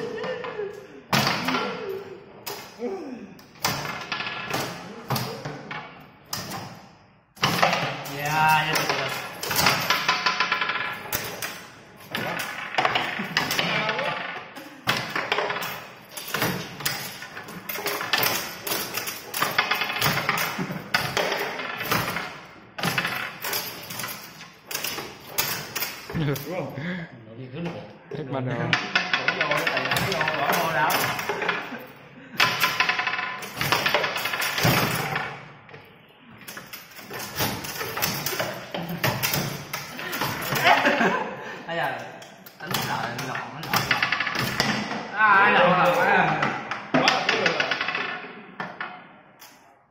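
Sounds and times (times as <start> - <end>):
foosball ball struck by players: 0.1 - 2.8, 3.5 - 26.2, 28.7 - 31.8, 32.4 - 35.8, 42.6 - 49.2.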